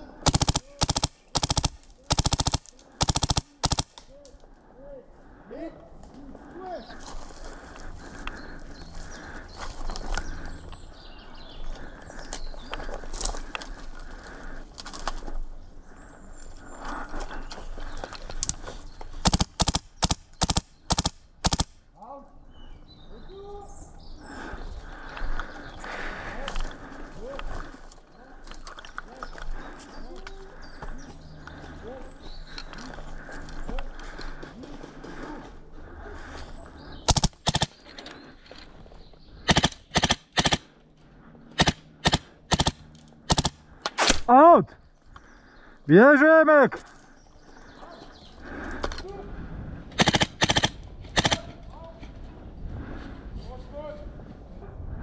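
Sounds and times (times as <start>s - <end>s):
airsoft rifle shots: 0.2s - 4.0s, 19.2s - 21.8s, 37.1s - 37.8s, 39.5s - 40.7s, 41.6s - 44.3s, 50.0s - 51.6s.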